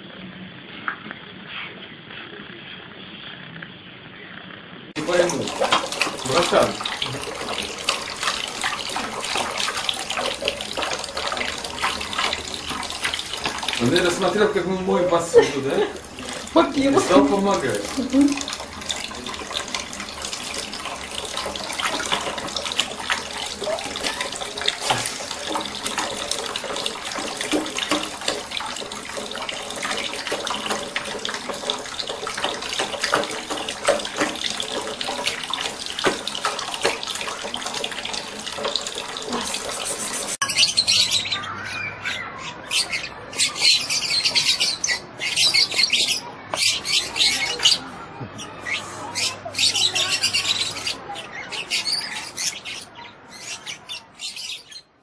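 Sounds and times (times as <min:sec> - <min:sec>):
tap water splashing into bowl: 0:05.0 - 0:40.4.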